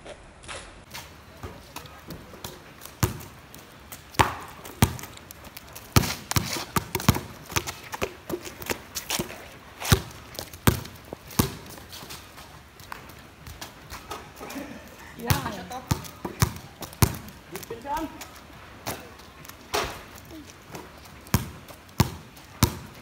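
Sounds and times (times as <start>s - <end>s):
footsteps on wet surface: 0.0s - 23.0s
basketball bouncing on wet concrete: 1.3s - 12.2s, 15.2s - 23.0s.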